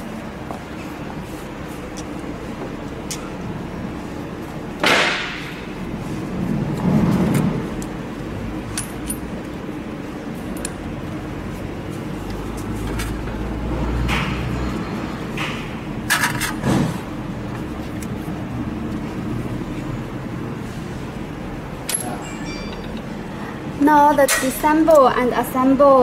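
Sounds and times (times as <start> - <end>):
steady low hum: 0.0 - 26.0
metal tools clinking: 8.7 - 9.4, 21.9 - 23.2.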